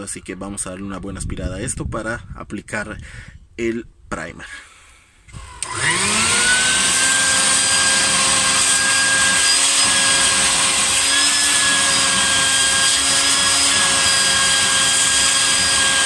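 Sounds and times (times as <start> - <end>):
vacuum cleaner running: 5.3 - 16.0.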